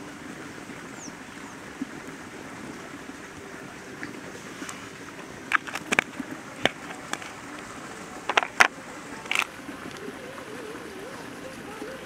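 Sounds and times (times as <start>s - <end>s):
outdoor background hiss: 0.0s - 12.0s
plastic containers clicking: 8.2s - 8.7s.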